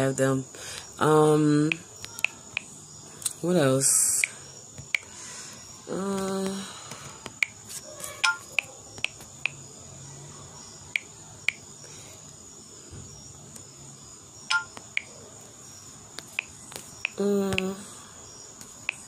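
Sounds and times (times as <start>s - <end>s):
woman humming: 17.2s - 17.9s.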